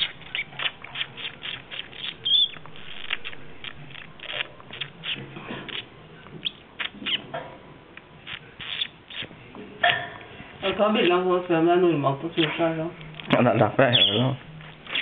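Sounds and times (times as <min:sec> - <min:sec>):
budgerigar chirping: 0:00.0 - 0:07.3, 0:08.3 - 0:09.3, 0:13.8 - 0:15.0.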